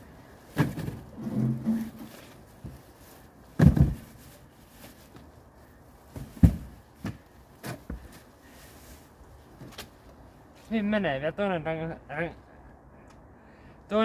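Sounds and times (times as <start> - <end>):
tyres thudding into car boot: 0.4 - 2.8, 3.6 - 4.3, 6.1 - 8.2.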